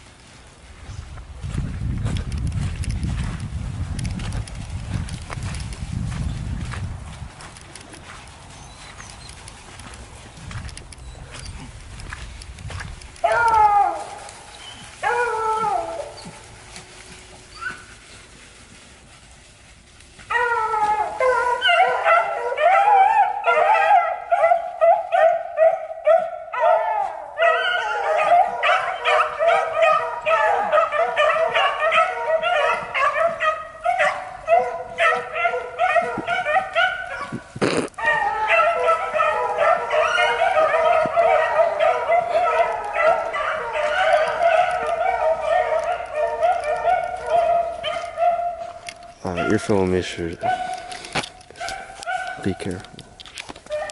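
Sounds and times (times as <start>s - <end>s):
dogs baying: 11.0s - 18.1s, 20.3s - 52.8s
dog howls: 13.2s - 14.3s, 15.0s - 16.4s, 20.3s - 37.4s, 38.0s - 49.6s, 53.7s - 53.9s.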